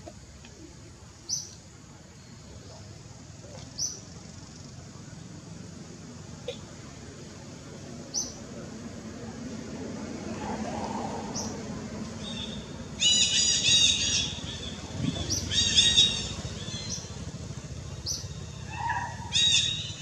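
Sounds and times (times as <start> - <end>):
animal chirping calls: 12.2 - 17.1, 18.1 - 20.0.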